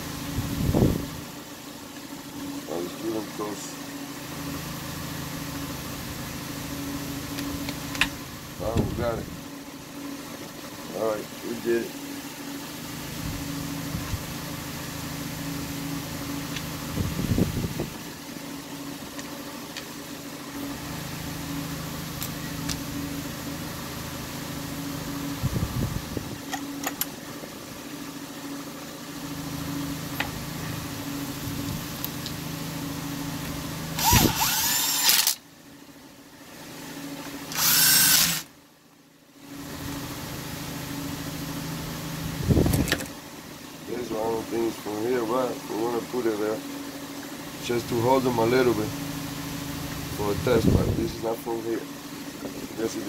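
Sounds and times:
steady low hum: 0:00.0 - 0:53.0
cordless drill whining: 0:34.0 - 0:35.4, 0:37.5 - 0:38.5.

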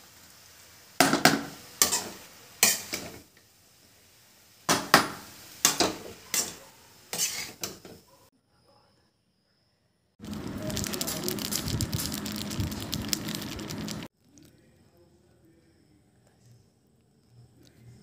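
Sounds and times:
metal spoon scraping a wok: 0:01.8 - 0:03.2, 0:05.6 - 0:07.9.

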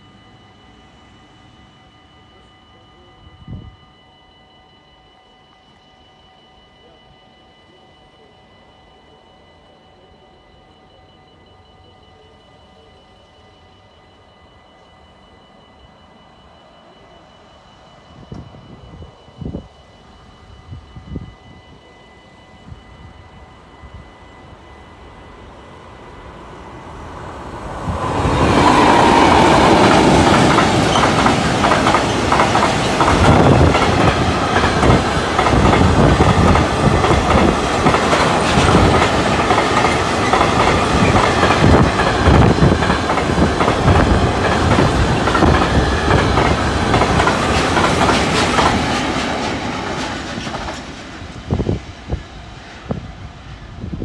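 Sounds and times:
freight train wheels clattering: 0:27.6 - 0:52.0.

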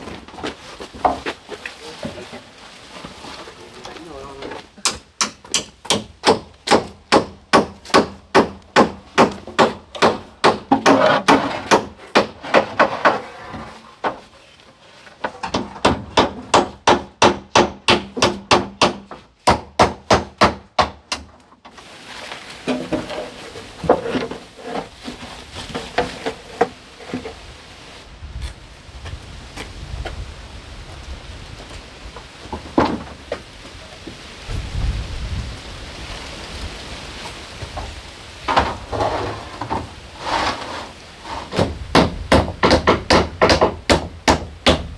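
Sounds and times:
rustling: 0:00.0 - 0:04.8, 0:21.7 - 0:30.1
blows striking wood: 0:04.8 - 0:13.2, 0:41.4 - 0:44.9.

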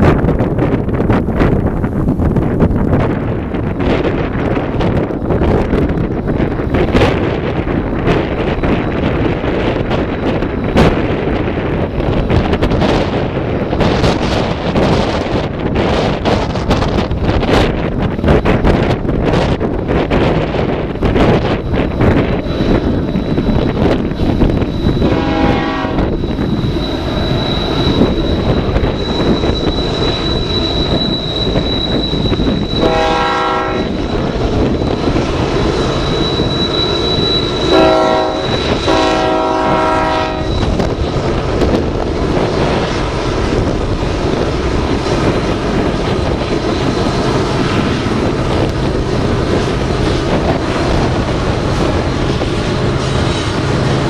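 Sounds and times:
freight cars rumbling and clattering: 0:00.0 - 0:33.2, 0:33.8 - 0:38.9, 0:40.5 - 0:54.0
diesel locomotive rumble: 0:00.0 - 0:54.0
train air horn blasts: 0:25.0 - 0:26.1, 0:32.8 - 0:34.0, 0:37.6 - 0:40.7.

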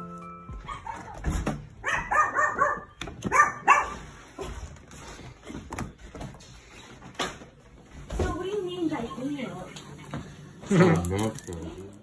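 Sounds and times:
dog barking: 0:00.6 - 0:04.1.

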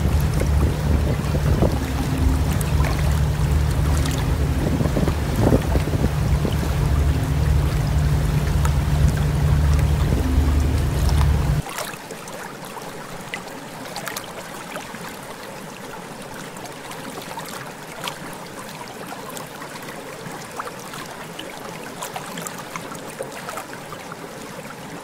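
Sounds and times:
low steady rumble: 0:00.0 - 0:11.6
small splashes and drips: 0:00.0 - 0:15.6, 0:16.4 - 0:25.0
water lapping and trickling: 0:00.0 - 0:25.0.

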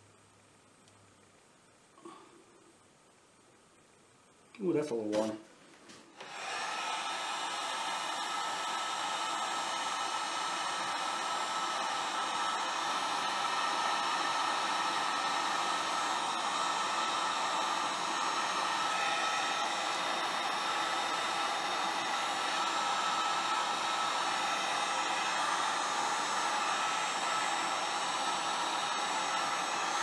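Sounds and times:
heat gun fan whining: 0:06.2 - 0:30.0.

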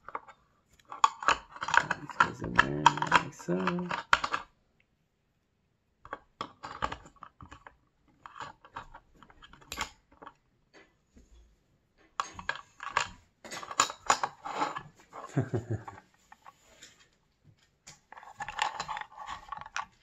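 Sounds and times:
plastic clicks and taps: 0:00.8 - 0:04.5.

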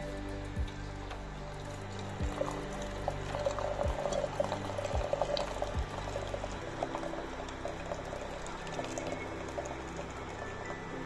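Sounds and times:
tea pouring into jug: 0:01.1 - 0:11.0.

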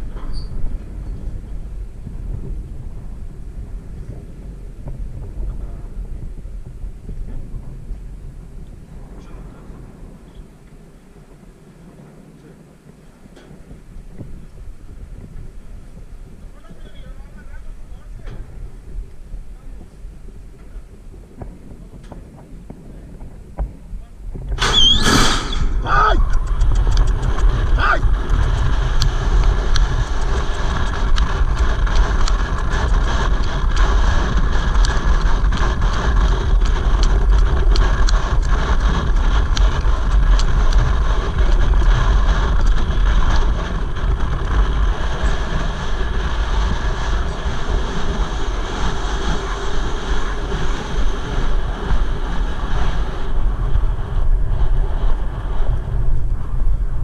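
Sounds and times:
wind buffeting microphone: 0:00.0 - 0:57.0.

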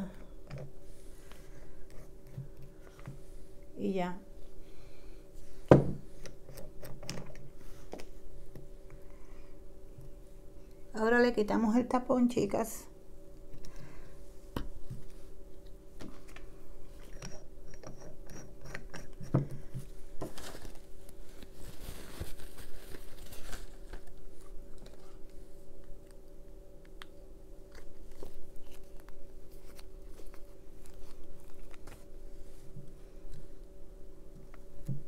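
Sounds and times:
crinkly paper rustling: 0:20.2 - 0:25.5, 0:27.7 - 0:33.6.

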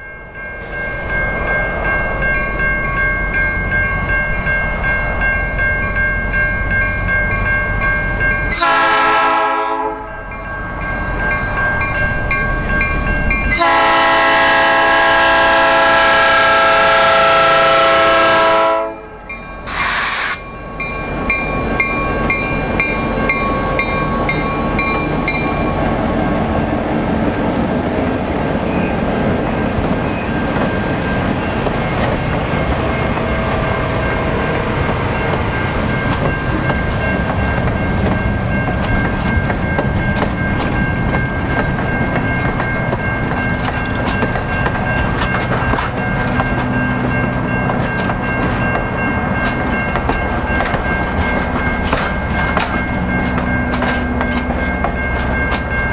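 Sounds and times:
bell ringing: 0:00.0 - 0:08.8, 0:10.0 - 0:13.8, 0:29.6 - 0:55.9
train horn: 0:08.6 - 0:10.1, 0:13.6 - 0:19.1
train wheels clattering: 0:27.8 - 0:55.9.

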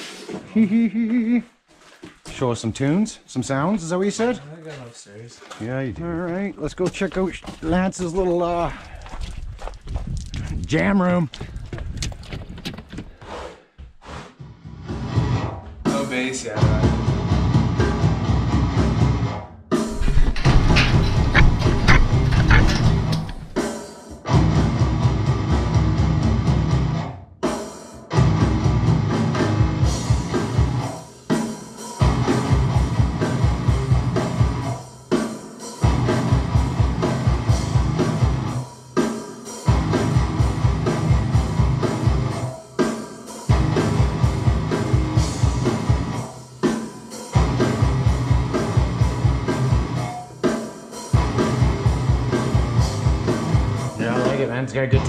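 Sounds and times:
rock music with drums and guitar: 0:14.7 - 0:55.0.

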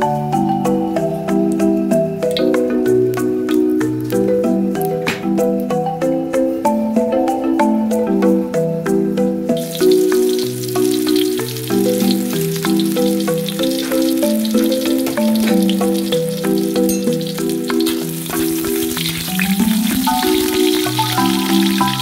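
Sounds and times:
garlic sizzling in hot oil: 0:09.6 - 0:22.0
metal spoon stirring in wok: 0:13.1 - 0:22.0.

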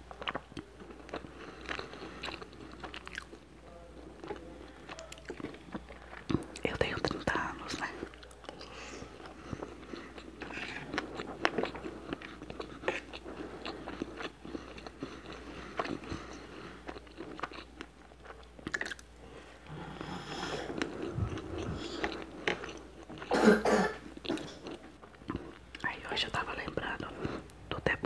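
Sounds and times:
person chewing food: 0:00.0 - 0:23.3, 0:24.0 - 0:27.6
person coughing: 0:23.3 - 0:24.6.

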